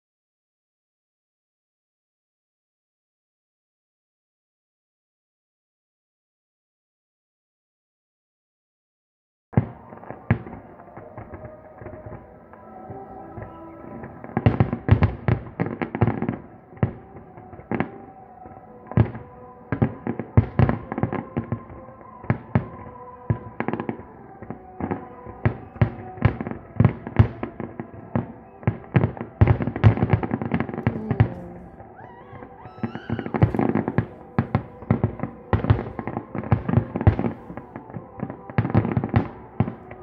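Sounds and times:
fireworks bursting: 29.4s - 39.7s.

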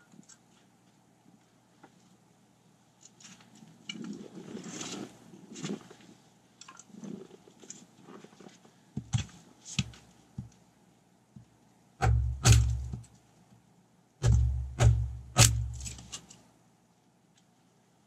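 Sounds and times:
axe thunking into wood: 12.0s - 13.0s, 14.2s - 16.0s.

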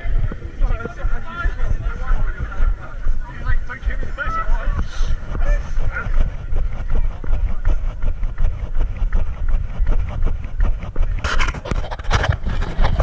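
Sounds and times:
footsteps on dirt path: 0.0s - 13.0s
wind rumble on microphone: 0.0s - 13.0s.

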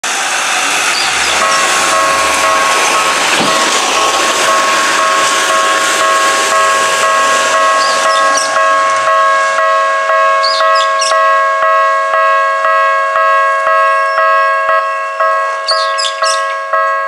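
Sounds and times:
electronic two-tone crossing bell: 4.0s - 17.0s.

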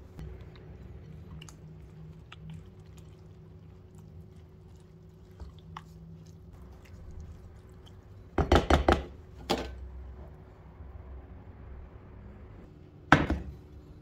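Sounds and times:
spatula mixing wet rice: 0.2s - 8.4s.

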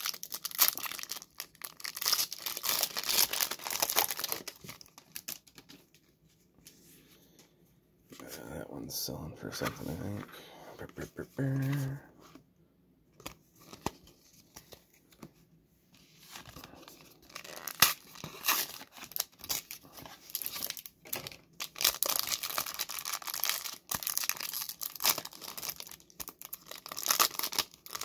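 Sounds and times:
foil wrapper crinkling and tearing: 0.0s - 5.8s, 16.4s - 28.0s.

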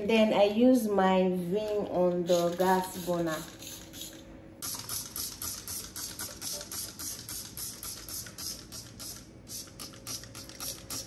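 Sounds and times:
spray bottle hissing squirts: 2.3s - 11.0s.

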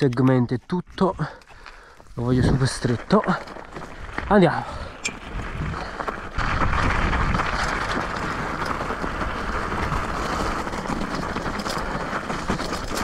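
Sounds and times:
bike rattling over rocks: 0.0s - 13.0s
bike tyres rumbling: 0.0s - 13.0s
wind on microphone: 4.8s - 11.0s.

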